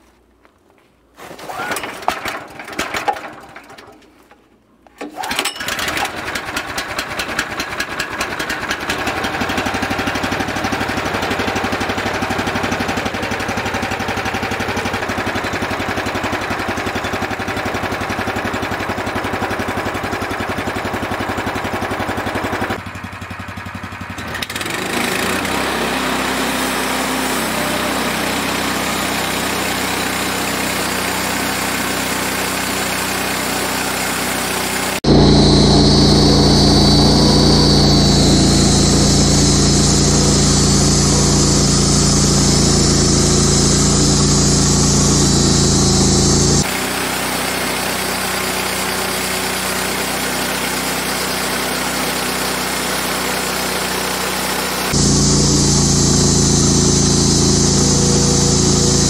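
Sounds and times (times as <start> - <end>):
gas engine running: 5.2 - 59.0
high hiss: 55.0 - 59.0.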